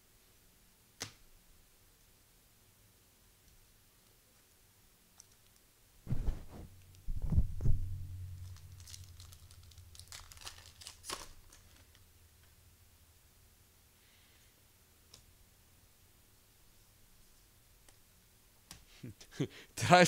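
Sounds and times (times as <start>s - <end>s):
low thumps: 6.1s - 10.0s
foil wrapper crinkling and tearing: 8.3s - 12.1s.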